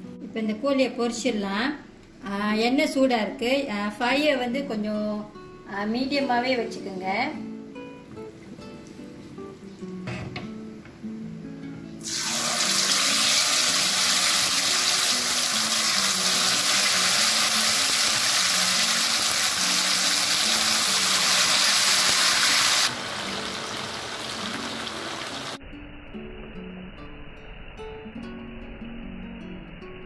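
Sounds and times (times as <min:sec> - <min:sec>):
chicken deep-frying in hot oil: 0:12.0 - 0:25.6.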